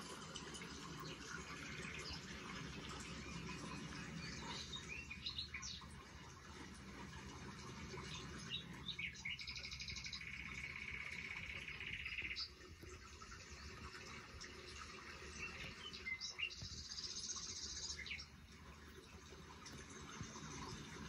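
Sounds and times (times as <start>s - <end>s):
faint background hum: 0.0s - 21.0s
bird chirping and trilling: 1.5s - 6.2s, 7.9s - 12.6s, 15.1s - 18.4s.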